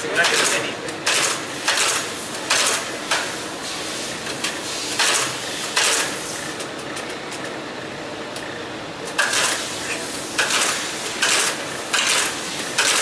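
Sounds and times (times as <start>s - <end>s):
embossing machine metallic clanks: 10.4s - 13.0s.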